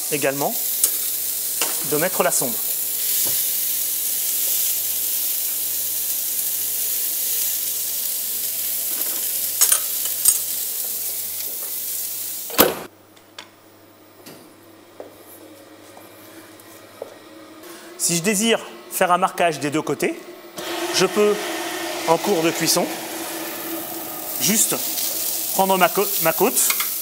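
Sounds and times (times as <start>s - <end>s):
steak sizzling: 0.0s - 12.6s, 20.6s - 27.0s.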